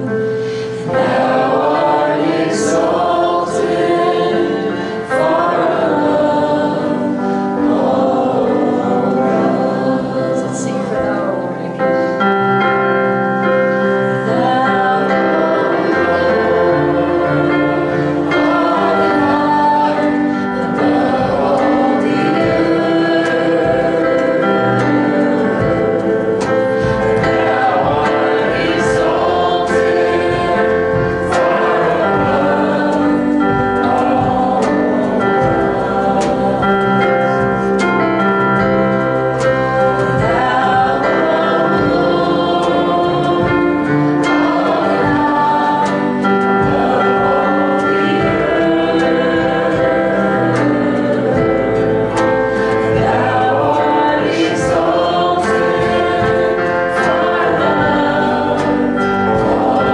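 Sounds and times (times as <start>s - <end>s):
guitars: 0.0s - 59.9s
keyboard: 0.0s - 59.9s
women singing gospel: 0.0s - 59.9s.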